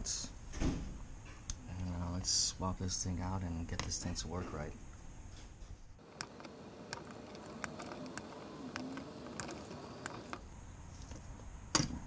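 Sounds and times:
wire cutters clicking: 6.0s - 10.4s.

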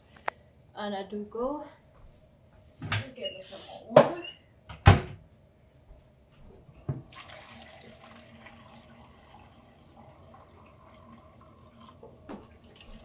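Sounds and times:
tap water running into vessel: 7.0s - 13.0s.

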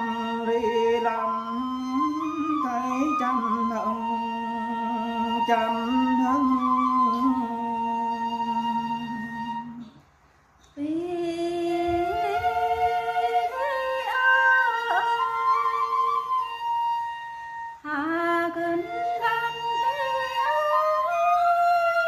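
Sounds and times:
woman singing folk song: 10.7s - 16.0s, 17.8s - 21.1s.

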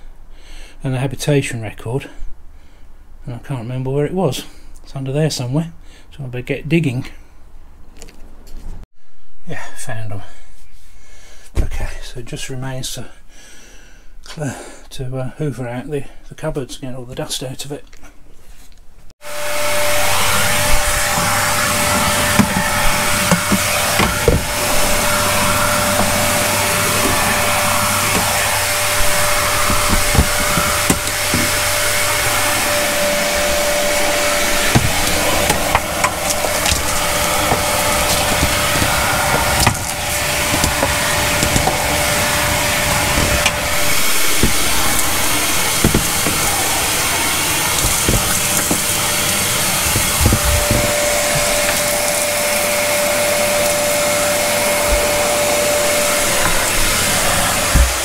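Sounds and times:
vacuum cleaner running: 19.2s - 58.0s
nozzle knocking on wood: 21.0s - 31.7s, 34.7s - 42.0s, 42.9s - 46.8s, 47.7s - 49.0s, 49.7s - 51.8s, 57.7s - 58.0s.

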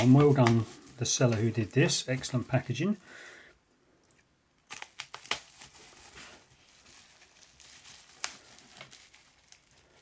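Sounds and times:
bubble wrap crinkling: 0.0s - 3.2s, 4.6s - 10.0s
scissors snipping bubble wrap: 4.6s - 5.8s, 8.0s - 9.7s.

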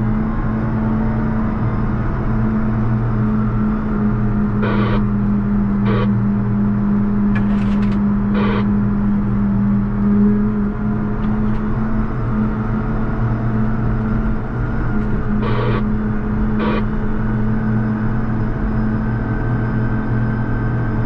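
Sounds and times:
short high-pitched noise bursts: 4.6s - 5.0s, 5.9s - 6.1s, 8.4s - 8.6s, 15.4s - 15.8s, 16.6s - 16.9s
tractor diesel engine droning: 4.6s - 5.1s, 5.9s - 6.2s, 8.4s - 8.8s, 15.4s - 17.6s.

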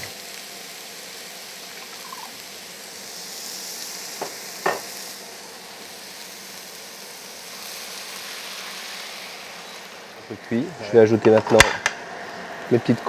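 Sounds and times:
vegetables sizzling in a frying pan: 0.0s - 13.0s
water pouring: 1.8s - 2.4s.

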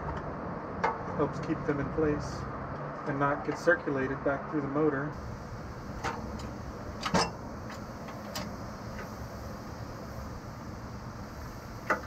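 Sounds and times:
steady low hum: 5.1s - 12.0s.

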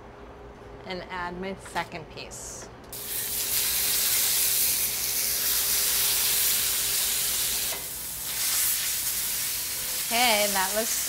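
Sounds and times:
meat sizzling in a skillet: 3.0s - 11.0s.

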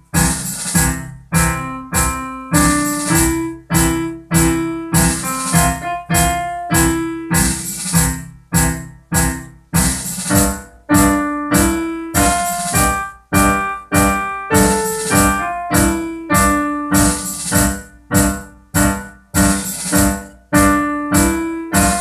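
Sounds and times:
piano chords: 0.0s - 22.0s.

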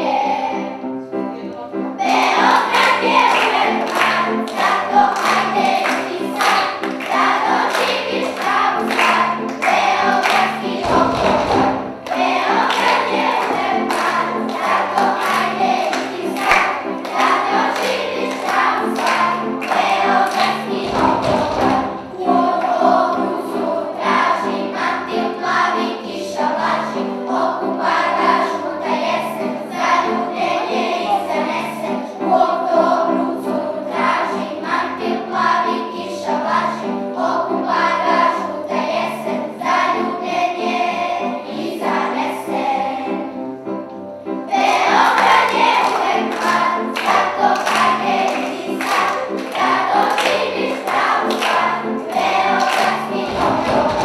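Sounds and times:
children's choir singing: 0.0s - 54.0s
instrumental accompaniment with beat: 2.2s - 23.1s.

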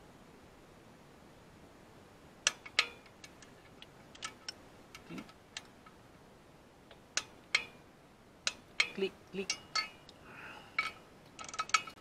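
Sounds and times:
ratchet metallic clicks: 2.4s - 6.0s, 7.2s - 7.8s, 8.4s - 10.0s, 10.8s - 12.0s.

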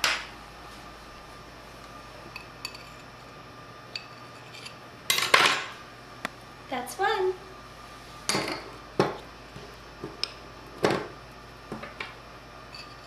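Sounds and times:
metal spoon clinking on bowls: 12.7s - 13.0s.

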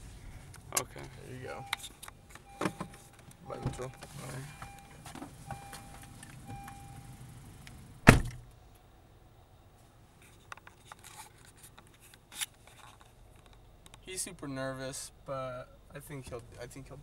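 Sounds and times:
car door shutting: 1.6s - 8.4s.

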